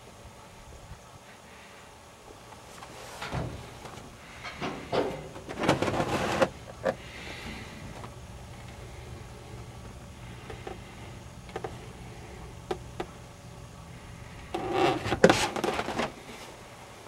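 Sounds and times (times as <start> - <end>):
rubber mat scraping and rubbing: 5.6 - 6.5, 14.6 - 16.1.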